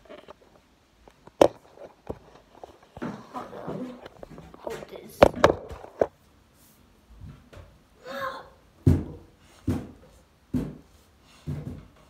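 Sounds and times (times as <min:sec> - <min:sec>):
person grunting: 0:08.0 - 0:08.5.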